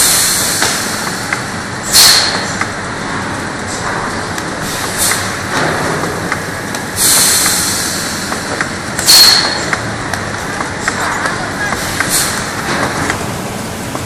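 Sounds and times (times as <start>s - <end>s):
bursts of hissing air: 0.0s - 2.6s, 3.6s - 9.8s, 11.4s - 13.7s
bottles clicking on conveyor: 0.0s - 14.0s
labeling machine whirring: 0.0s - 14.0s.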